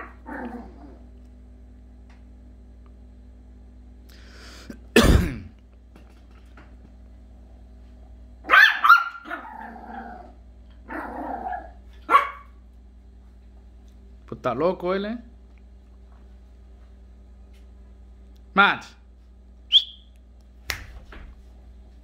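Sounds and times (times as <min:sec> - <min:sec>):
steady low hum: 0:00.0 - 0:22.0
puppy barking: 0:08.4 - 0:09.7, 0:10.9 - 0:12.6.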